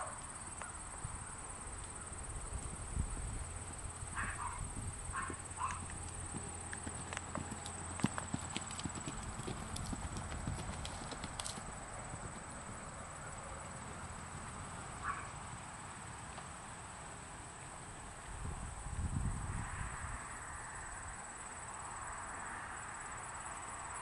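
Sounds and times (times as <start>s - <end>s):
horse hoofbeats on grass and dirt: 4.4s - 16.6s.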